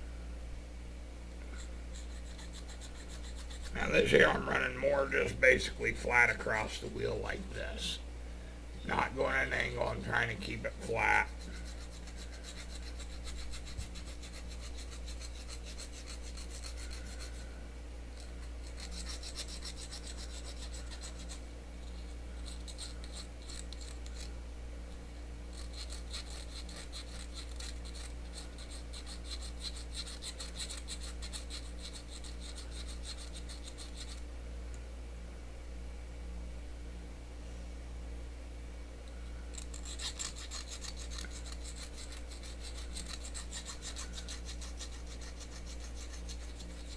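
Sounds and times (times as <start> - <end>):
file rasping on metal: 1.6 - 4.3, 11.2 - 17.5, 18.2 - 24.3, 25.5 - 34.2, 39.5 - 46.9.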